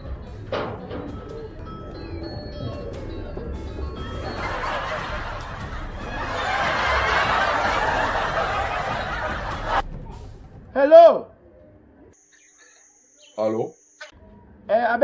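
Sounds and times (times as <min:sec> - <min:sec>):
many people laughing: 0:04.1 - 0:09.8.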